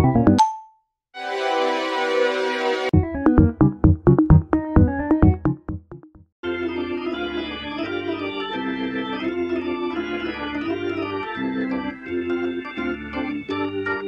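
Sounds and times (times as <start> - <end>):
organ music: 1.2 - 5.8, 6.4 - 14.0
electronic music with sharp beats: 3.0 - 6.0.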